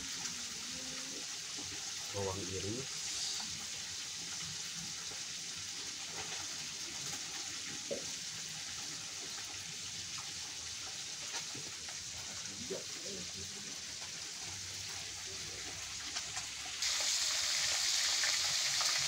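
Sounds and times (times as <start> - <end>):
water swishing in a pot: 0.0 - 19.0
steady hiss: 2.0 - 5.1.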